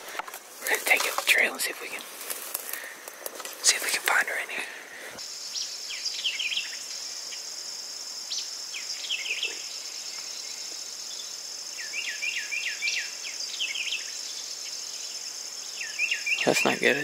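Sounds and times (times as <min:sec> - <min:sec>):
high-pitched insect chorus: 0:00.0 - 0:17.0
bird chirping: 0:05.2 - 0:17.0.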